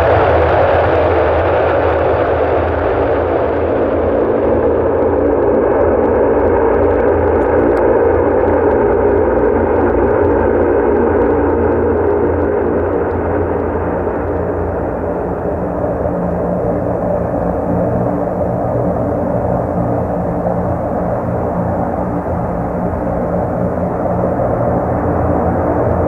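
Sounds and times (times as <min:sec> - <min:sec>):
turboprop engines droning: 0:00.0 - 0:26.0.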